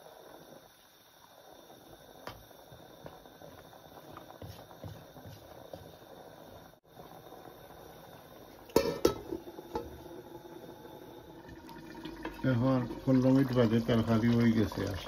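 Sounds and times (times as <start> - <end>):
curry simmering in a pot: 0.0 - 15.0
metal lid clanking onto pot: 8.7 - 10.0.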